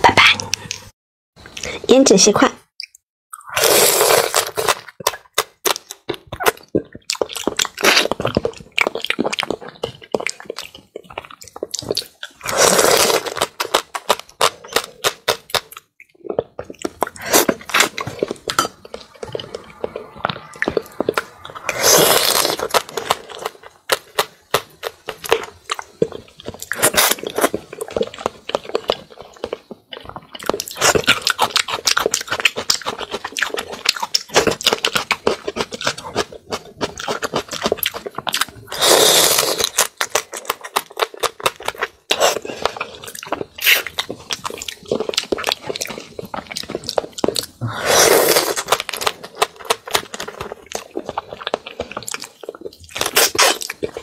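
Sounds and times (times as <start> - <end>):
wet mouth clicks: 2.8 - 3.5
chewing and crunching: 3.4 - 54.0.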